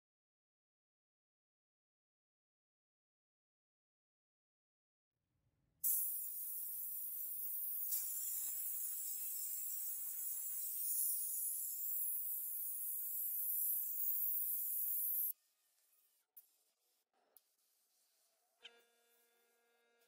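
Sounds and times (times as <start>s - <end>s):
sandblasting gun hissing: 5.8s - 15.3s.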